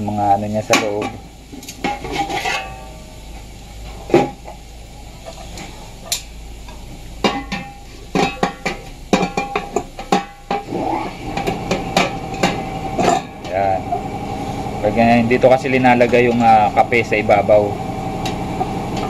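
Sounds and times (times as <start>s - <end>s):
metal urn parts clinking: 0.7s - 3.1s, 7.2s - 10.7s, 11.4s - 13.7s.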